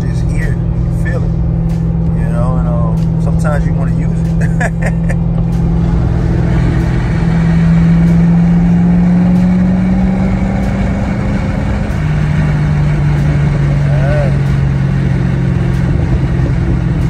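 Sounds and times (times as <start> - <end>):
car engine droning in cabin: 0.0 - 17.0.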